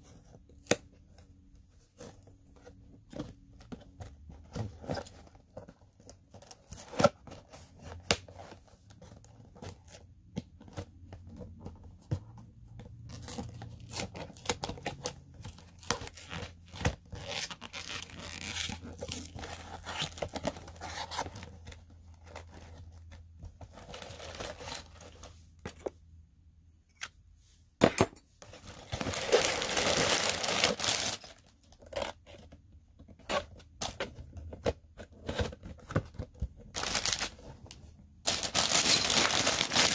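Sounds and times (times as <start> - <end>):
packaging tearing and crinkling: 28.7 - 32.1, 36.8 - 37.4, 38.3 - 39.9.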